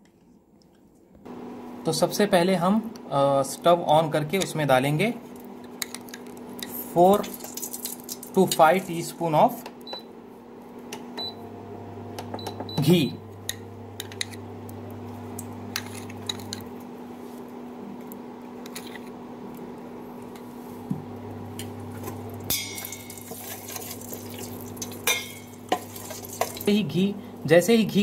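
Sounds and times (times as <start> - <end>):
metal skimmer scraping a steel pan: 22.5 - 26.7.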